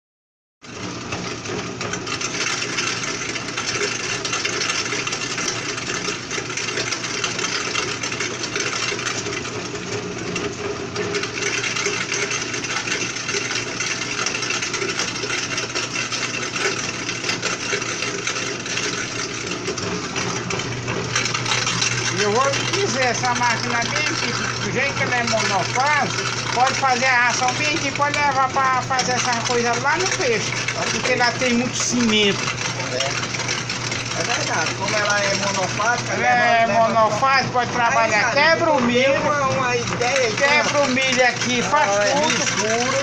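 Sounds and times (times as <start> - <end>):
grinding of die and rollers: 0.6 - 43.0
electric motor hum: 0.7 - 43.0
pellets rattling down metal chute: 11.2 - 36.2, 37.8 - 43.0.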